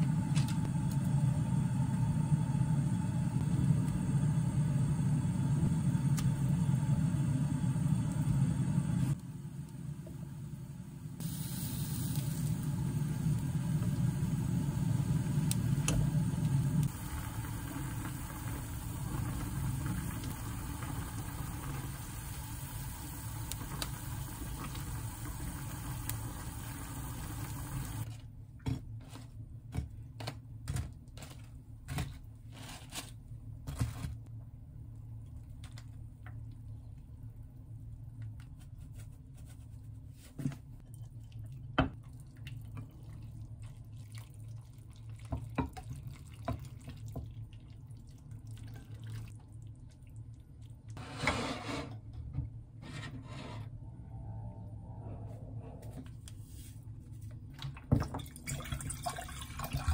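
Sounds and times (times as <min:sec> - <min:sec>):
gas burner rumble and hiss: 0:00.0 - 0:28.1.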